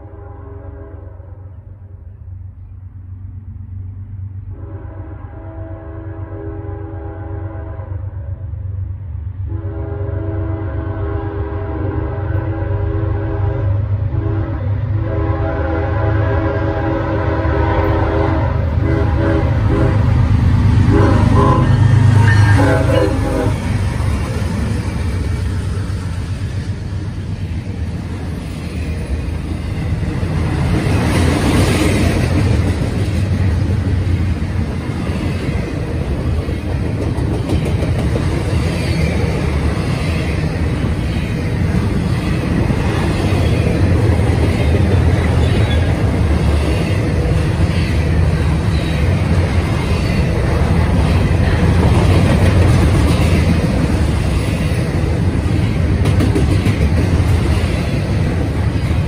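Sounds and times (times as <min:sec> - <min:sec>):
steel wheels on rails: 0:17.2 - 0:59.0.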